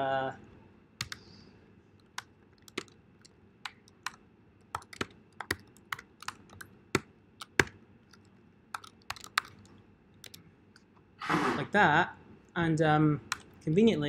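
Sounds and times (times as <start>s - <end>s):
typing on computer keyboard: 1.0s - 1.2s, 2.0s - 10.4s, 13.3s - 13.6s.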